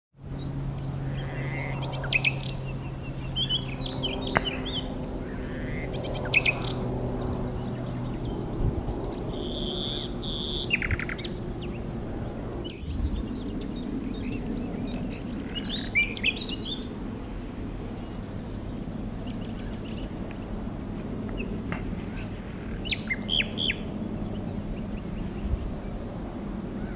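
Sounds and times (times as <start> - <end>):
nightingale singing: 9.3 - 11.8, 22.8 - 23.8.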